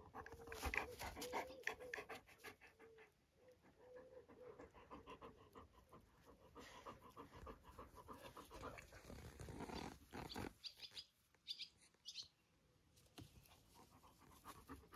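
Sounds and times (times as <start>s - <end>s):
dogs panting: 0.0s - 9.2s, 13.5s - 14.9s.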